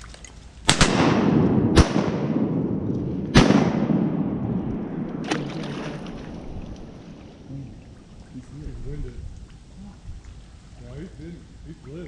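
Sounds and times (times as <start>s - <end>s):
shotgun shots with echo: 0.7s - 6.5s.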